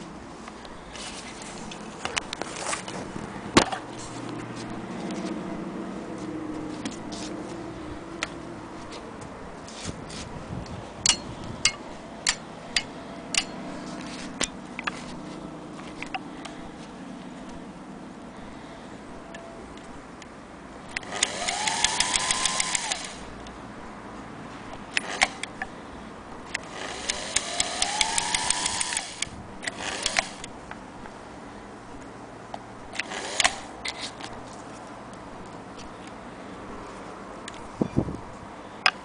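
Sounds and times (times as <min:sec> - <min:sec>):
scattered clicks: 0:20.9 - 0:23.6, 0:26.5 - 0:30.5
sewing machine running: 0:21.0 - 0:23.2, 0:26.8 - 0:30.4.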